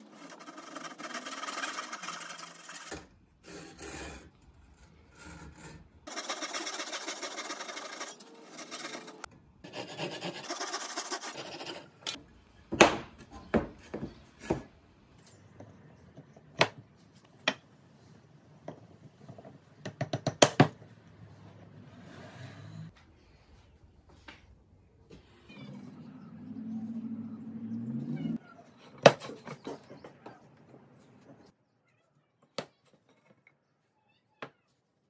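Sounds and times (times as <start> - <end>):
handsaw sawing wood: 6.1 - 11.8.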